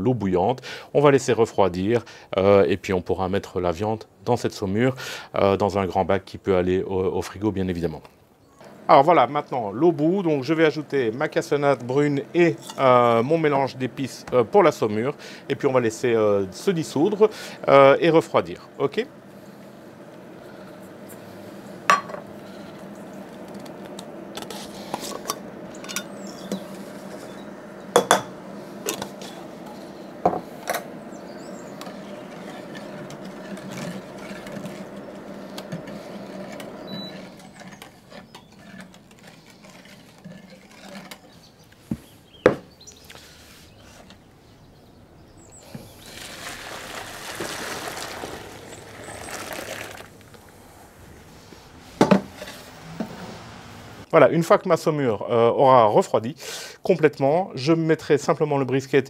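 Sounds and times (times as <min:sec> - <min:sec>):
steady hum: 0:08.6 - 0:54.2
liquid pouring into tub: 0:45.8 - 0:50.4.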